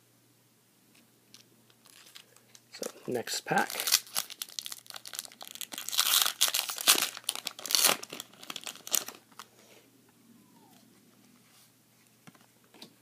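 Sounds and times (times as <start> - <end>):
foil wrapper crinkling and tearing: 1.7 - 9.5.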